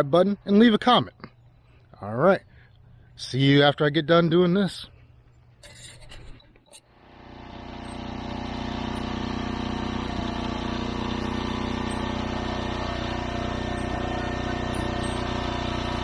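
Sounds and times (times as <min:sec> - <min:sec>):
lawn mower engine running: 0:06.9 - 0:16.0.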